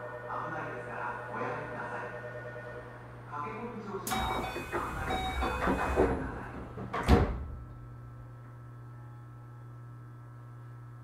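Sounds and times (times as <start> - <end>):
train humming: 0.0 - 8.8
train doors shutting: 4.0 - 7.8.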